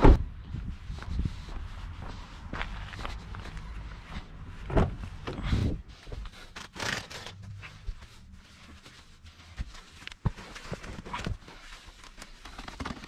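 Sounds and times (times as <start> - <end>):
rustling: 2.7 - 13.0
car door thumps: 4.7 - 5.4.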